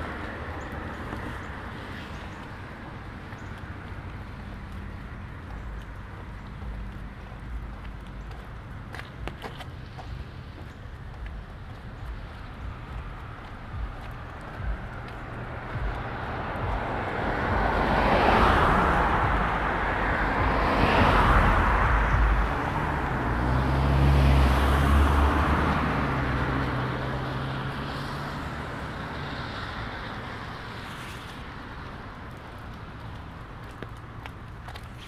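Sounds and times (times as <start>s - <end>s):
low engine hum: 0.0s - 35.0s
tyre hiss on wet road: 27.1s - 32.3s.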